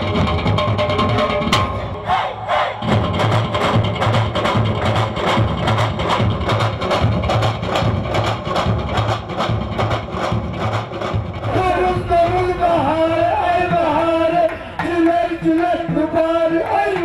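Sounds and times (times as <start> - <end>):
lively folk dance music: 0.0 - 17.0
hands clapping in time: 16.5 - 17.0.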